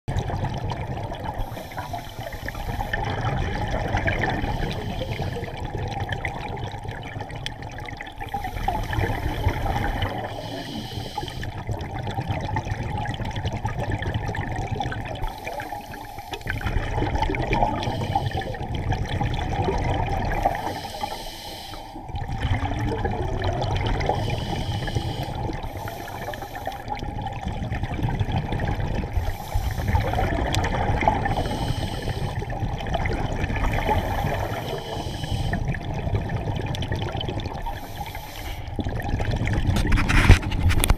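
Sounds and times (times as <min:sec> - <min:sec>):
bubbling exhale rumble: 0:00.1 - 0:40.9
regulator inhale hiss: 0:01.4 - 0:03.0, 0:04.5 - 0:05.6, 0:08.3 - 0:11.6, 0:15.2 - 0:16.6, 0:17.7 - 0:18.6, 0:20.4 - 0:22.1, 0:24.1 - 0:27.0, 0:29.2 - 0:30.3, 0:31.2 - 0:32.5, 0:33.7 - 0:35.7, 0:37.7 - 0:38.8.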